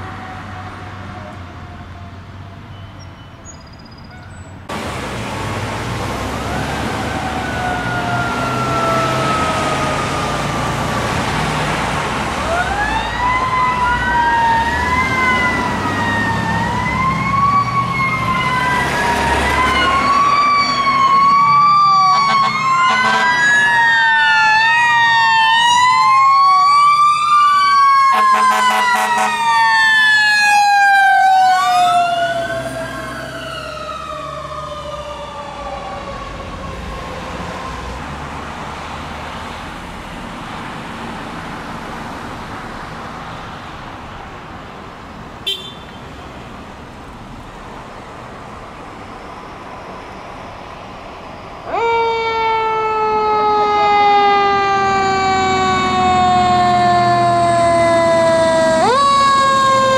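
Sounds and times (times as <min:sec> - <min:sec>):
fire engine sirens wailing: 0:00.0 - 0:02.7, 0:04.7 - 0:44.6, 0:46.6 - 0:59.9
short horn blasts: 0:45.5 - 0:46.0.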